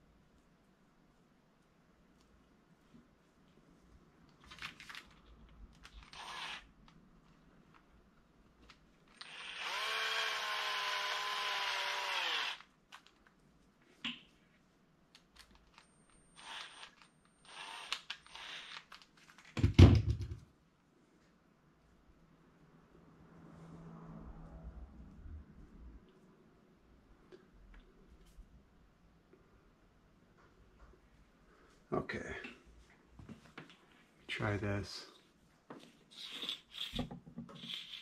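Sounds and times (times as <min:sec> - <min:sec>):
cordless drill motor running: 0:06.0 - 0:06.7, 0:09.2 - 0:12.7, 0:16.4 - 0:19.0
drill thumping on wooden bench: 0:19.6 - 0:20.4.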